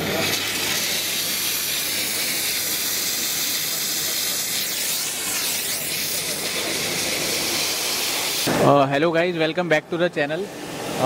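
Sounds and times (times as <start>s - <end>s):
steam spray hissing: 0.0s - 8.7s.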